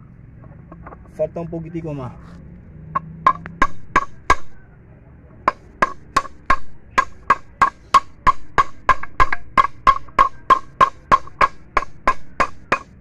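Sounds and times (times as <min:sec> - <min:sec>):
hammer tapping metal shaft: 0:03.0 - 0:04.6, 0:05.5 - 0:13.0.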